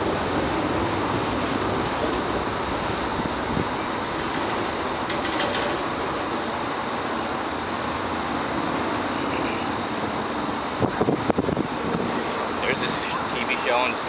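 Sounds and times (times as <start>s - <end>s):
train wheels rumbling on track: 0.0s - 14.0s.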